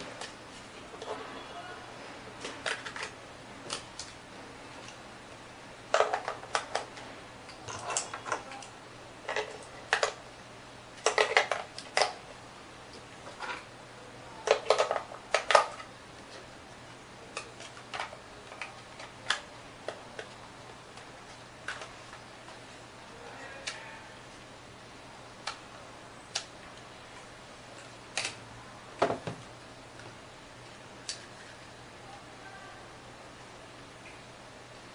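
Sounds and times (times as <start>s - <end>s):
plastic clicks and clatter: 11.0s - 12.2s, 14.4s - 16.4s, 17.3s - 20.4s.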